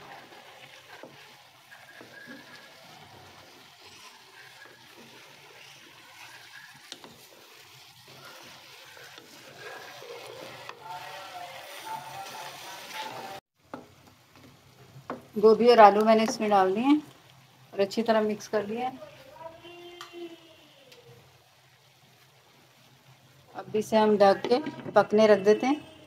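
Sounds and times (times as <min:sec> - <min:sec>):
wooden spatula stirring in pan: 0:00.0 - 0:25.8
faint oil sizzle: 0:00.0 - 0:26.0.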